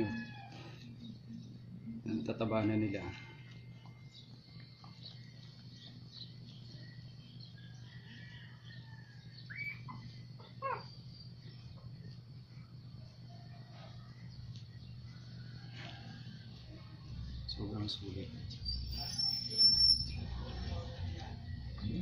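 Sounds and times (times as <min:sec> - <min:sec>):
steady low hum: 0:00.0 - 0:22.0
puppies squeaking: 0:09.4 - 0:11.1, 0:18.6 - 0:20.4
puppy squeals falling in pitch: 0:09.5 - 0:10.0.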